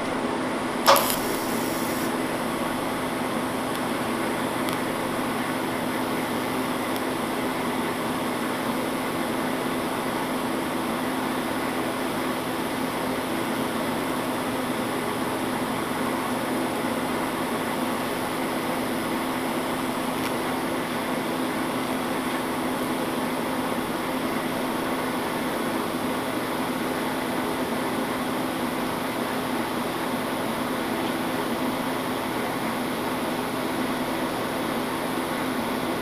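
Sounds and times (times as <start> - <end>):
welding arc buzzing hiss: 0.8 - 2.6.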